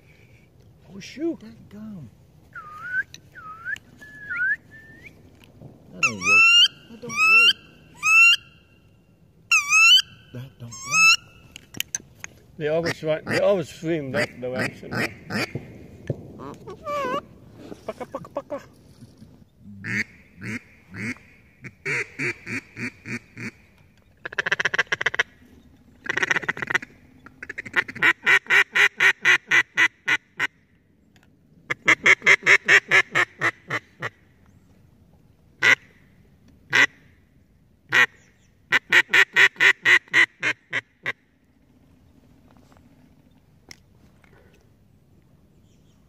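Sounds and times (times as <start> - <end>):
duck call quacks: 6.0 - 8.4, 14.1 - 15.6, 19.8 - 23.6, 24.2 - 25.3, 26.0 - 30.5, 31.7 - 34.2, 35.6 - 35.9, 36.7 - 37.0, 37.9 - 38.1, 38.7 - 41.2.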